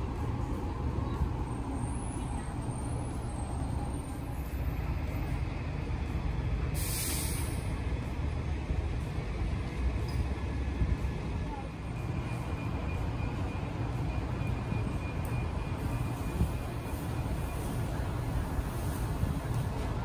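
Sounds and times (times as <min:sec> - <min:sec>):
short sharp hiss: 0:06.8 - 0:07.7.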